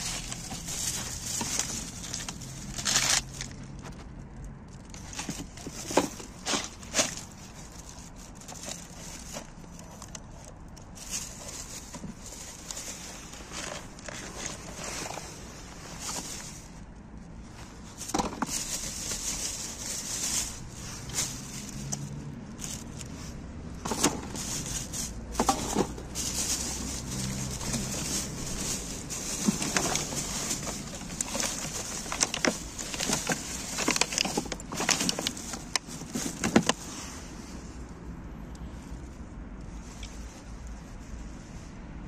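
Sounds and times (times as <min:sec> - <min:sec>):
items clicking and knocking: 0:00.0 - 0:15.3, 0:18.0 - 0:22.0, 0:23.7 - 0:36.8
plastic bags and paper rustling: 0:00.0 - 0:37.9.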